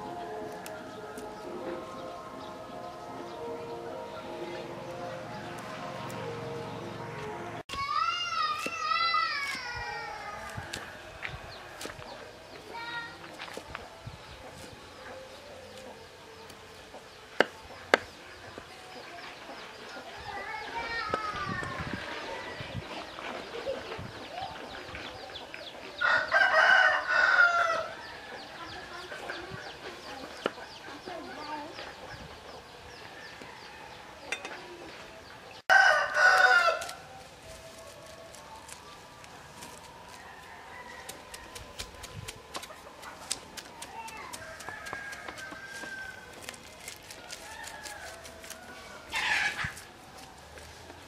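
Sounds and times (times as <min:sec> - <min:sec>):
rooster crowing: 0:26.0 - 0:28.3, 0:35.7 - 0:37.0, 0:40.2 - 0:41.6, 0:44.4 - 0:46.5.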